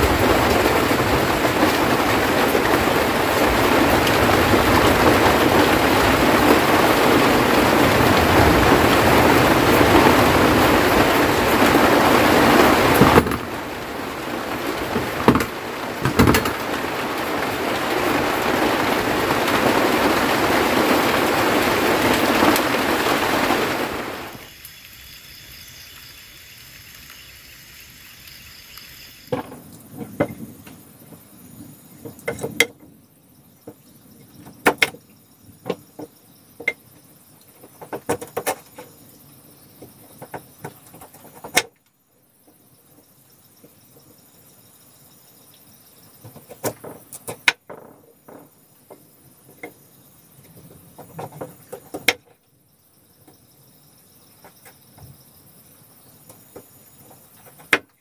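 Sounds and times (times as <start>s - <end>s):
heavy rain hissing: 0.0s - 32.5s
faint insects: 0.0s - 58.0s.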